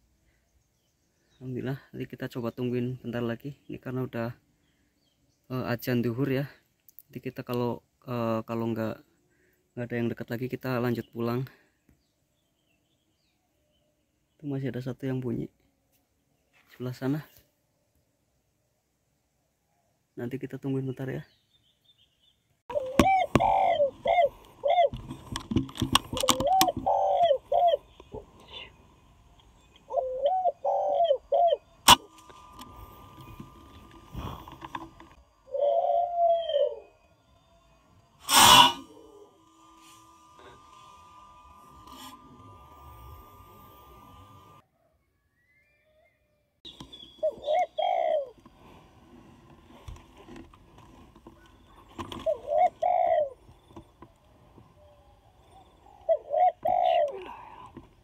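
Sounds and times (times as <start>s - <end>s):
dove cooing: 22.7s - 37.1s, 38.2s - 40.6s, 46.8s - 48.9s, 51.3s - 58.0s
sharp clicks: 24.4s - 26.9s.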